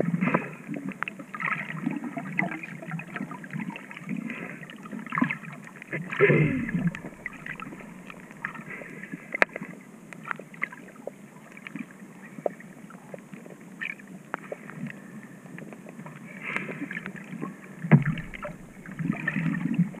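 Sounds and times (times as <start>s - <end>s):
underwater clicks and crackles: 0.3s - 4.3s, 5.0s - 20.0s
underwater thump: 6.2s - 8.7s, 17.9s - 19.6s
underwater hiss: 6.2s - 9.4s, 18.0s - 19.6s.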